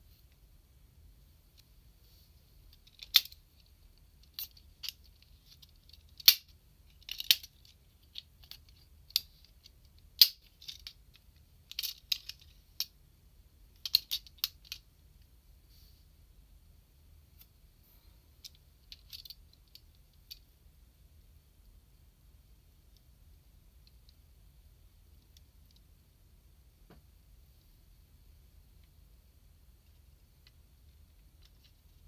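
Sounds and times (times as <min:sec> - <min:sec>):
plastic parts clicking and snapping: 0:02.8 - 0:03.4, 0:04.2 - 0:12.5, 0:13.8 - 0:14.8.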